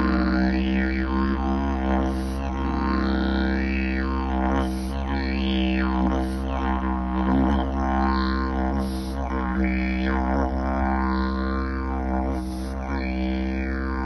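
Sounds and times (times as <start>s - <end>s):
didgeridoo drone: 0.0s - 14.0s.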